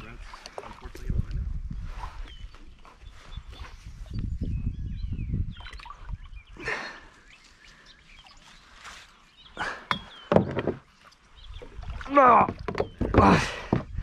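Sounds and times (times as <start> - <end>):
water splashing: 0.0 - 1.2, 8.1 - 14.0
birds chirping faintly: 0.0 - 14.0.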